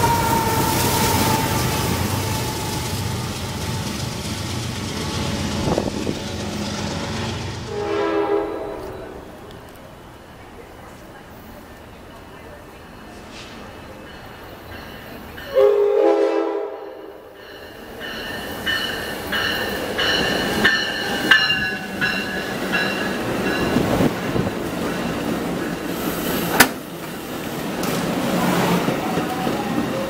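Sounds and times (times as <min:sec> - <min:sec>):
train horn blast: 0:00.0 - 0:03.5, 0:07.6 - 0:09.4, 0:15.5 - 0:17.2
train wheel rumble: 0:00.0 - 0:30.0
locomotive bell ringing: 0:13.9 - 0:16.0, 0:16.7 - 0:25.5.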